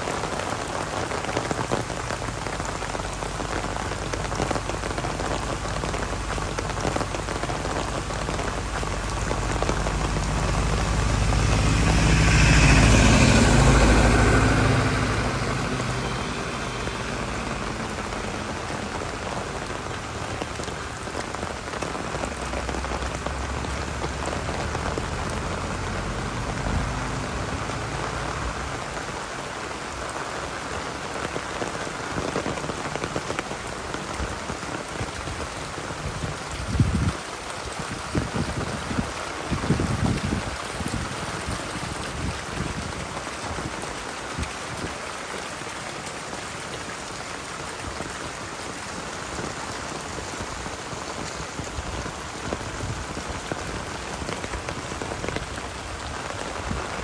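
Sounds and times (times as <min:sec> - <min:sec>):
heavy rain pattering: 0:00.0 - 0:57.0
deep rushing noise: 0:08.4 - 0:20.7.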